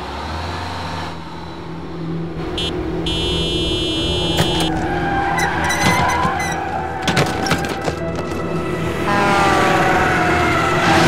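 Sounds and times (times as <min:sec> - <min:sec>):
vehicle engine running: 0:00.0 - 0:04.9
horn beeping: 0:02.5 - 0:06.6
shrill squeals: 0:04.5 - 0:06.9.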